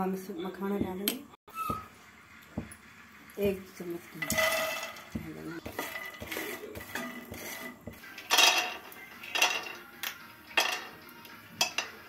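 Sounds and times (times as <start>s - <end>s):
nuts clattering in a frying pan: 4.2s - 11.0s, 11.6s - 12.0s.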